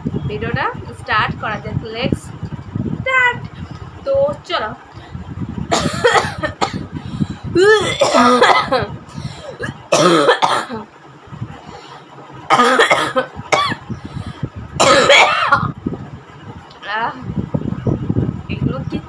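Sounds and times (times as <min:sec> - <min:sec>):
woman coughing: 0:05.7 - 0:06.9, 0:07.6 - 0:08.9, 0:09.5 - 0:10.9, 0:12.5 - 0:13.8, 0:14.8 - 0:15.7.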